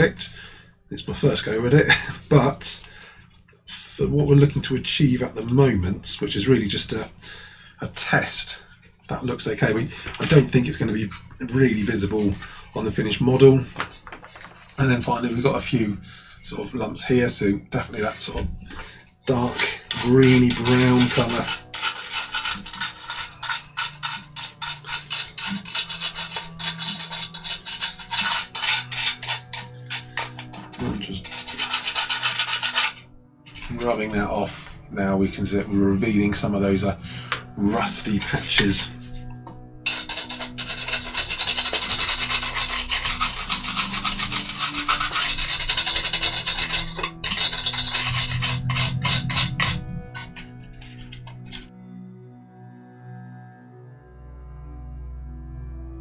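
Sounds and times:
toothbrush scrubbing plastic: 18.0s - 33.0s, 39.9s - 51.6s.

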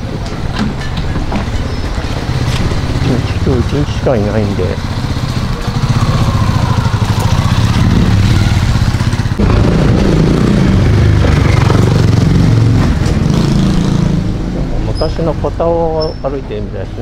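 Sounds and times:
small motorcycle engine running: 1.8s - 14.3s.

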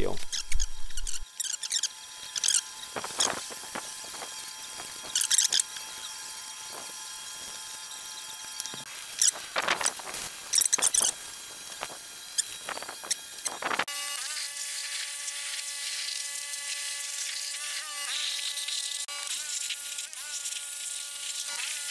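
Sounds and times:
squeaky scrubbing on metal tube: 0.2s - 6.2s, 9.2s - 11.2s.

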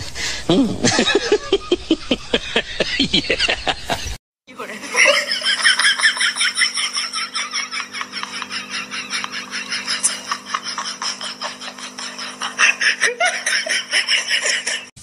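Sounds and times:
breathy giggling laughter: 0.5s - 15.0s
steady low hum: 4.8s - 14.9s.

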